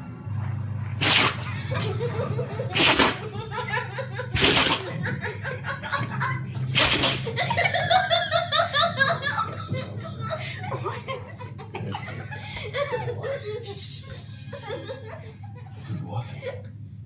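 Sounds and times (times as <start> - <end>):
dog sneezing: 1.0 - 1.6, 2.7 - 3.3, 4.3 - 4.9, 6.7 - 7.4
person laughing: 1.2 - 16.7.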